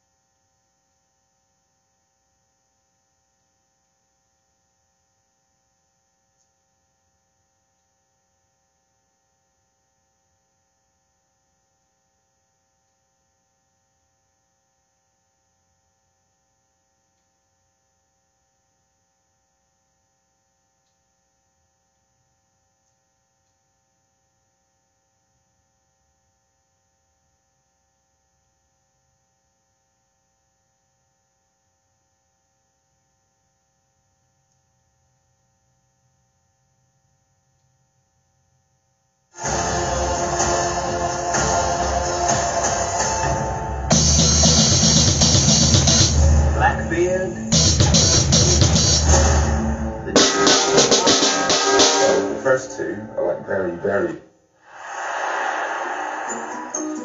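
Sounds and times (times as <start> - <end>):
faint ticks: 20.8 - 21.1
high hiss: 54.6 - 57.0.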